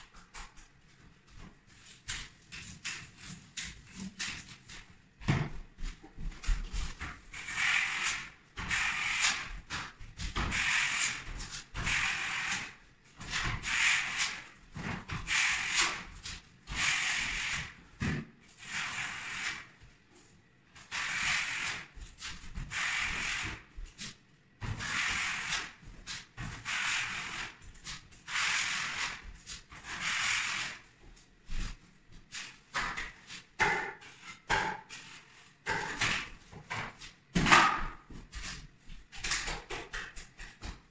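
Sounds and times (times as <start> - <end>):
paint roller rasping strokes: 6.7 - 17.9, 18.5 - 19.8, 20.8 - 24.1, 24.7 - 30.9.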